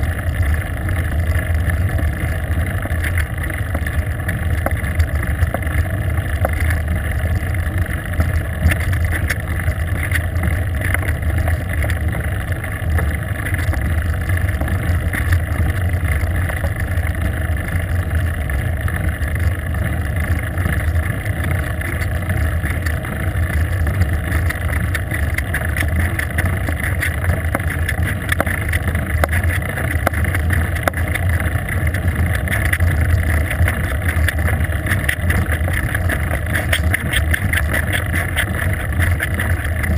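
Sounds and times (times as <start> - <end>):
wind and road noise rush: 0.0 - 39.9
faint ticks: 0.2 - 39.9.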